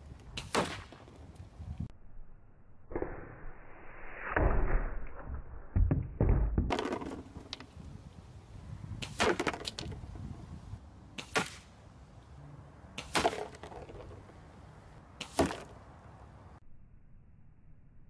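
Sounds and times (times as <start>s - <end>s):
pellet striking cardboard target: 5.8s - 7.7s, 9.0s - 9.9s, 13.0s - 14.1s, 15.2s - 15.8s
air rifle shots: 11.2s - 11.7s.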